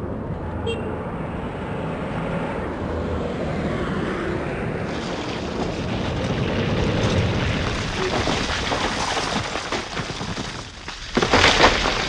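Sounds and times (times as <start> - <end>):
low rumbling noise: 4.4 - 9.3.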